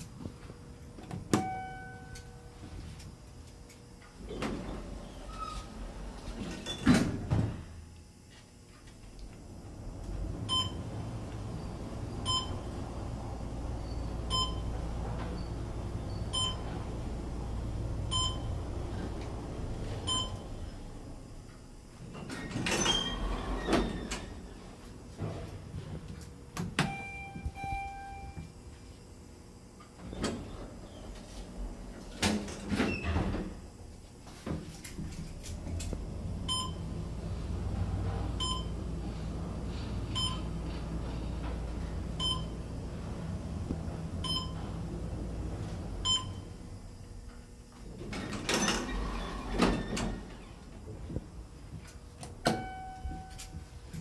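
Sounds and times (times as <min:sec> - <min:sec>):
elevator car humming: 0:00.0 - 0:03.1, 0:04.1 - 0:07.8, 0:09.0 - 0:28.7, 0:30.0 - 0:54.0
elevator chime tone: 0:01.3 - 0:02.5, 0:10.5 - 0:12.8, 0:13.7 - 0:16.8, 0:18.1 - 0:18.7, 0:20.0 - 0:20.8, 0:26.9 - 0:28.5, 0:36.5 - 0:36.9, 0:38.4 - 0:38.8, 0:40.2 - 0:40.5, 0:42.2 - 0:42.6, 0:44.2 - 0:44.7, 0:46.0 - 0:46.5, 0:52.5 - 0:53.6
short beeps: 0:01.4 - 0:02.4, 0:13.9 - 0:14.7
elevator doors sliding: 0:04.2 - 0:07.8, 0:09.5 - 0:26.1, 0:30.0 - 0:33.7, 0:34.4 - 0:46.9, 0:47.5 - 0:51.5.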